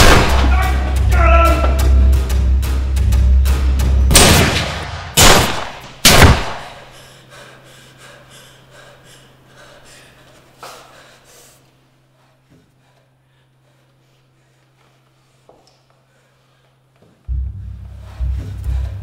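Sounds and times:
handgun shots: 0.0 - 0.5, 4.1 - 6.9
low droning film score: 17.3 - 19.0.

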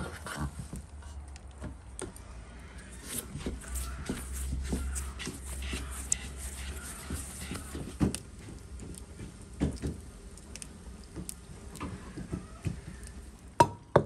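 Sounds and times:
hands slapping bread dough: 3.1 - 10.0.

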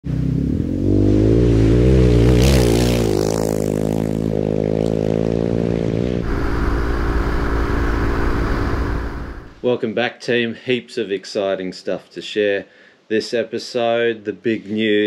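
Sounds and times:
motorcycle engine revving: 0.1 - 9.6.

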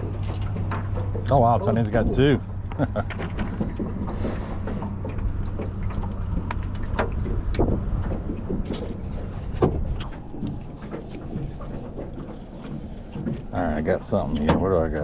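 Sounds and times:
fish handled in aluminum boat: 0.0 - 15.0
low motor hum: 0.0 - 15.0
fishing tackle knocks and clicks: 2.2 - 13.6.

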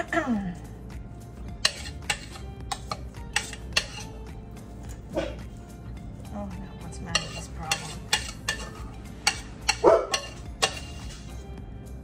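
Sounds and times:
metal spoon scraping a saucepan: 1.6 - 5.1, 6.9 - 11.5
dog barking: 5.1 - 5.4, 9.8 - 10.3.

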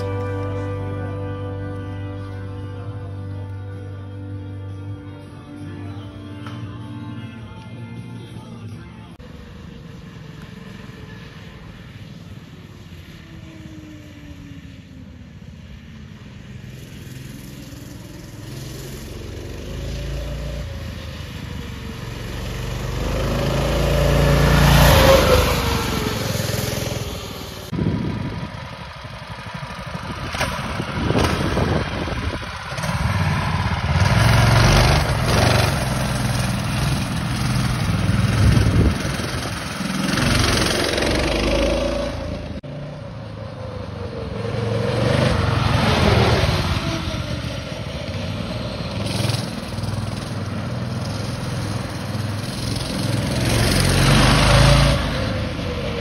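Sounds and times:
go-kart engines revving: 0.0 - 3.2, 16.1 - 56.0.

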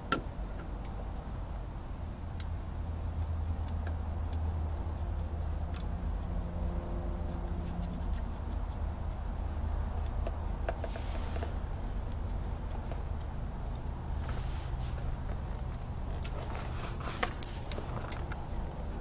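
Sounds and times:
steady low hum: 0.0 - 19.0
short hissing rushes: 10.9 - 11.5.

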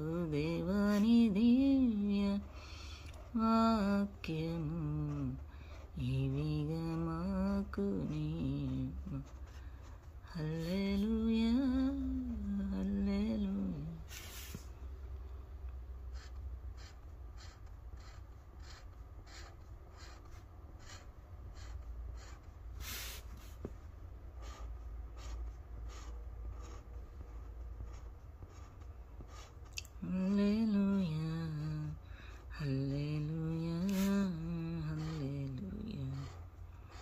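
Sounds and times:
low steady hum: 0.0 - 37.0
pen strokes on a board: 0.6 - 14.7, 16.0 - 37.0
woman humming: 3.1 - 5.4, 29.8 - 36.4.

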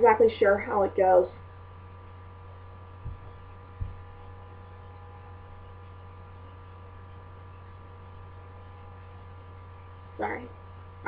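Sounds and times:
low background hum: 0.0 - 11.0
short low thumps: 2.8 - 4.6.

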